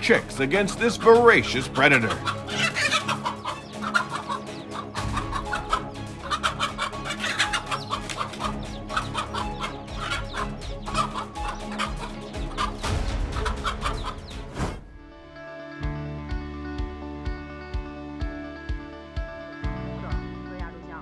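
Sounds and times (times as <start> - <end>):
background music: 0.0 - 21.0
hen alarm clucks and squawks: 1.7 - 14.5.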